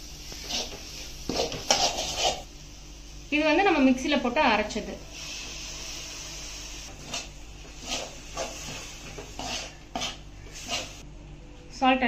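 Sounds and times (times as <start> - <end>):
skimmer scraping a pan: 0.4 - 2.5, 6.9 - 11.0
puree hissing in hot pan: 5.0 - 11.0.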